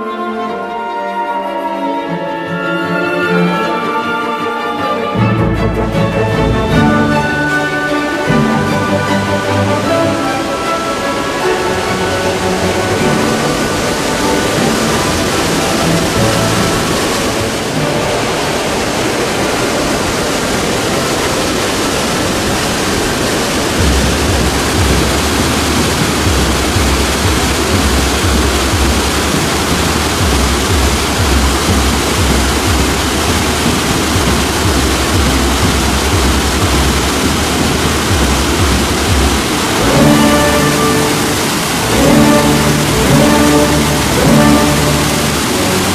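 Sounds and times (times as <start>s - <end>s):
waterfall rushing: 0.0s - 45.9s
deep rumble: 22.5s - 45.9s.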